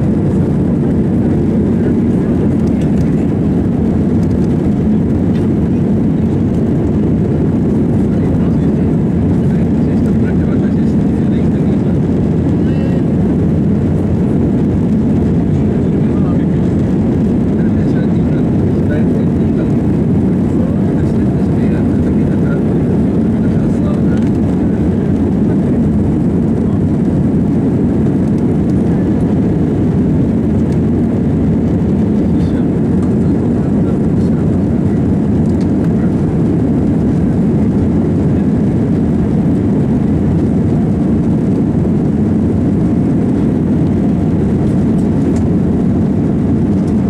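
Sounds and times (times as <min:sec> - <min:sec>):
jet engines and airflow rumble: 0:00.0 - 0:47.0.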